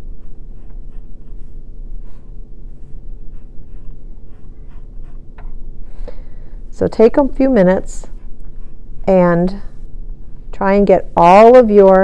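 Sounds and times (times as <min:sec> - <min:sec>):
pencil scratching on paper: 0:00.0 - 0:05.6, 0:07.8 - 0:09.3
low hum: 0:00.0 - 0:12.0.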